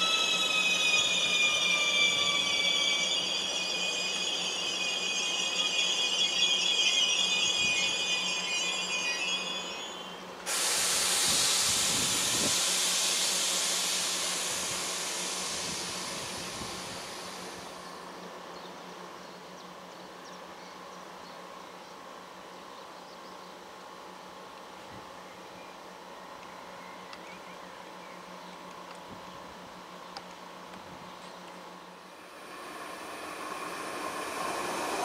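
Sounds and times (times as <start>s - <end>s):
compressed air hissing from train: 0.0s - 18.3s, 32.0s - 35.0s.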